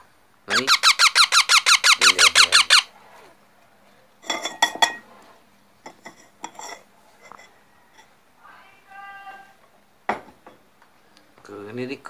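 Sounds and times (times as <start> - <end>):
baby parakeet begging calls: 0.5 - 2.9.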